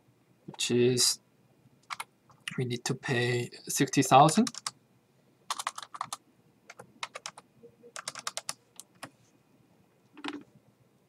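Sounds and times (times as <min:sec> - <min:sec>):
computer keyboard typing: 0:01.8 - 0:02.1, 0:04.3 - 0:04.8, 0:05.5 - 0:09.1.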